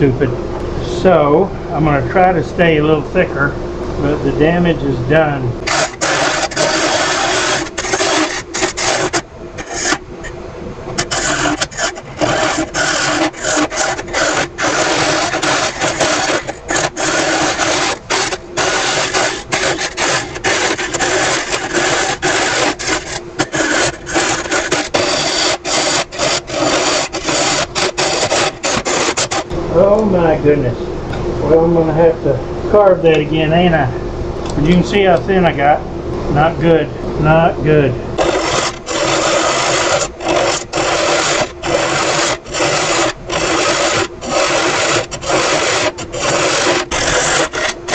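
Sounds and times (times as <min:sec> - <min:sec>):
steady low tone: 0:00.0 - 0:05.7, 0:29.5 - 0:38.2
lathe tool scraping wood: 0:05.6 - 0:29.9, 0:38.2 - 0:47.9.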